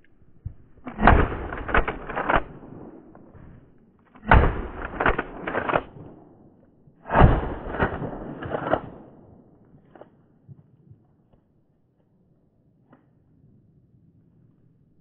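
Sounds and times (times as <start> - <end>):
shotgun shots: 0.8 - 3.3, 4.2 - 6.3, 7.0 - 9.4.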